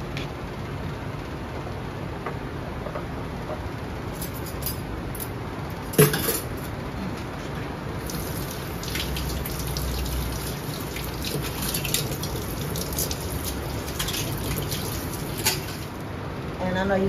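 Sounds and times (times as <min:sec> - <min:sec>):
faucet running into metal sink: 0:08.0 - 0:15.9
hands washing with splashing: 0:08.0 - 0:16.0.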